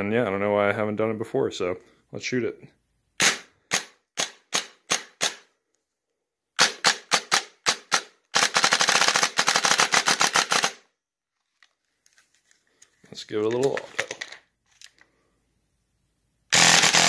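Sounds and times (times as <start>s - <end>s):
airsoft gun firing: 3.2s - 5.5s, 6.6s - 10.8s.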